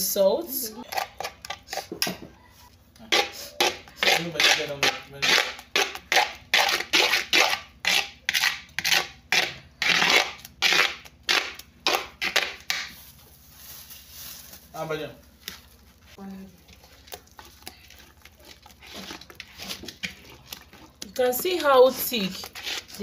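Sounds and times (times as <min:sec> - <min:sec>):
spoon scraping earthenware pot: 0:16.6 - 0:23.0.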